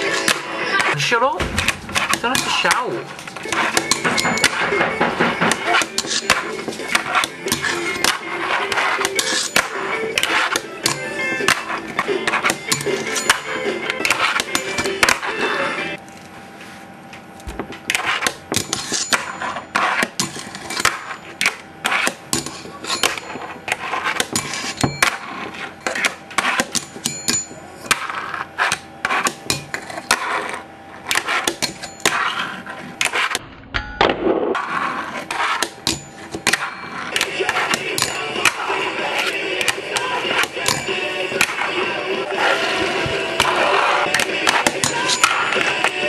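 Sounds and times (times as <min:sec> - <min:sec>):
fingerboard clacking and grinding: 0:03.2 - 0:15.3.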